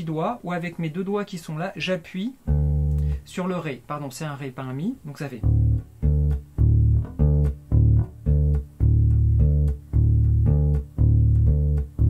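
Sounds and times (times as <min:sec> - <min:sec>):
muted electric bass notes: 0:02.5 - 0:03.3, 0:05.4 - 0:12.0.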